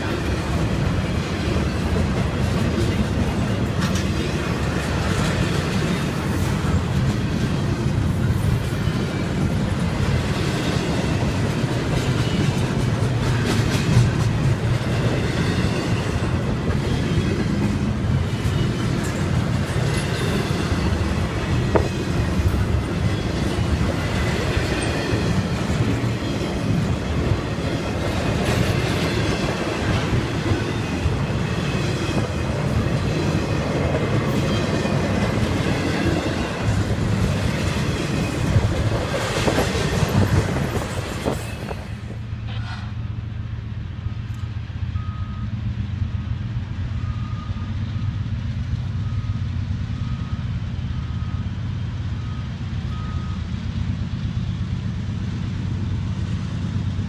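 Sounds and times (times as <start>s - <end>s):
wheels clacking over rail joints: 0.0s - 42.9s
freight train wheels rumbling: 0.0s - 57.0s.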